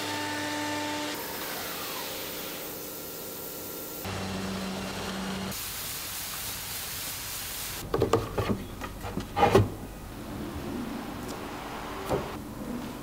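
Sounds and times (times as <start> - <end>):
steady hiss: 4.9 - 7.8.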